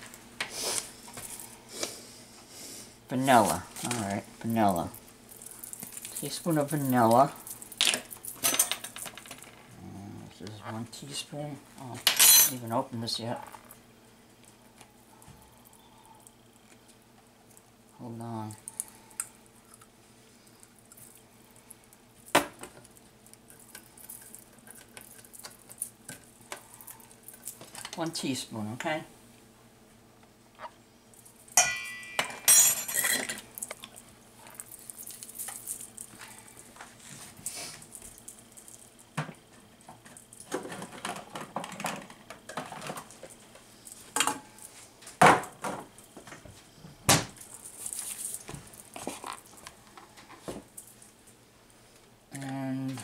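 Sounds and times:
glass bottle and metal spoon clinking: 31.6 - 33.4.

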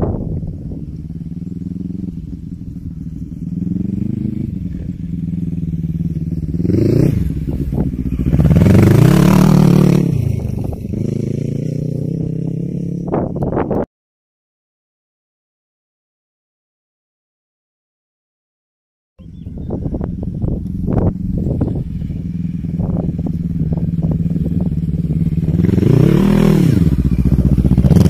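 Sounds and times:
quad bike engine revving: 0.0 - 13.6, 19.2 - 28.0.

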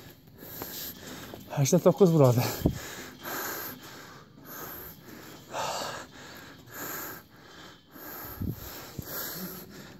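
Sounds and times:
person breathing hard: 2.4 - 9.9.

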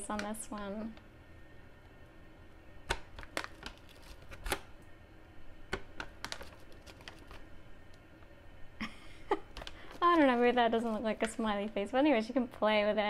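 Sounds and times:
plastic bag crinkling: 3.0 - 4.6, 6.0 - 7.5, 9.5 - 12.6.

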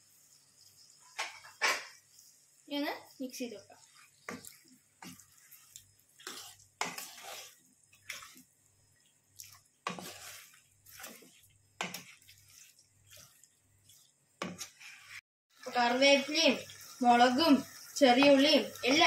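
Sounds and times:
spatula scraping frying pan: 3.5 - 15.2.

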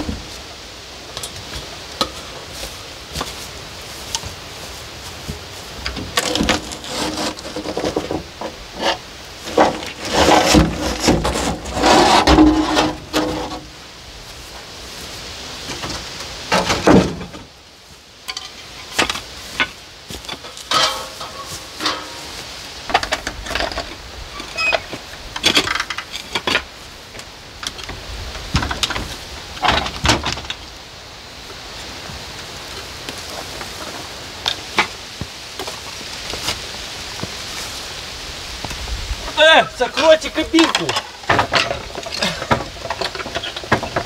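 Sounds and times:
boards knocking and clattering: 5.8 - 13.7, 15.7 - 17.5, 18.3 - 22.3, 22.9 - 24.0, 27.7 - 30.6, 40.0 - 44.0.

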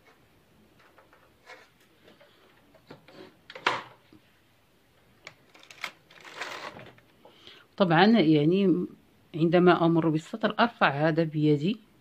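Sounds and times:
knitting machine lock rattling scrape: 5.5 - 7.0.

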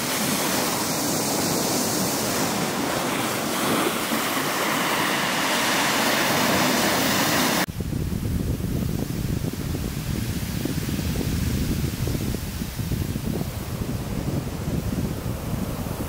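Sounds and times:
slushy water washing on ice: 0.0 - 7.7.

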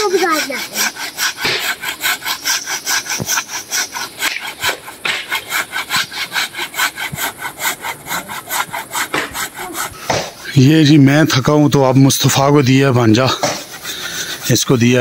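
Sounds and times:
hand saw rasping through wood: 0.0 - 15.0.

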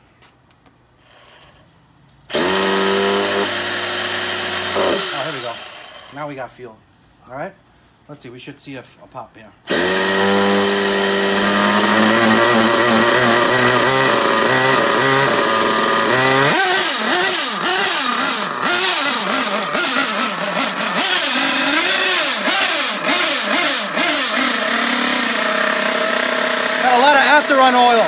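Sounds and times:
small glow engine revving: 2.3 - 6.2, 9.7 - 28.0
electric starter whine: 2.3 - 6.4, 9.7 - 28.0.

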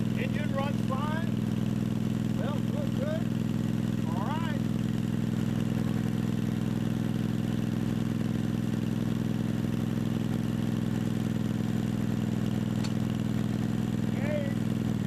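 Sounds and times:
riding mower engine running: 0.0 - 15.0.

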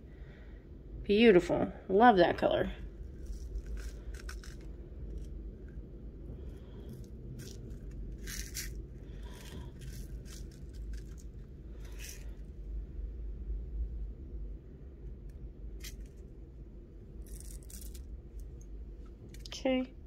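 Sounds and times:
low steady hum: 0.0 - 20.0
beads rustling and scraping: 2.8 - 12.5, 15.8 - 16.3, 17.1 - 18.6.

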